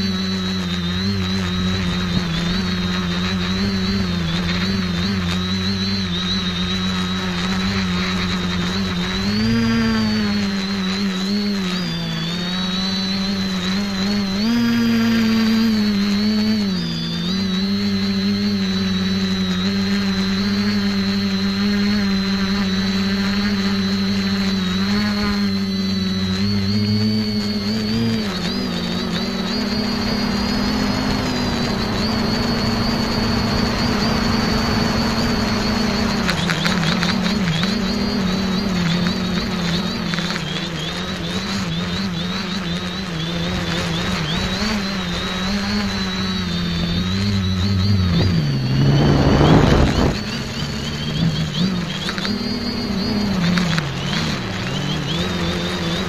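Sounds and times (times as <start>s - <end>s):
drone motors and propellers humming: 0.0s - 56.0s
high motor whine: 0.0s - 56.0s
broad rushing noise: 25.6s - 38.4s, 43.6s - 56.0s.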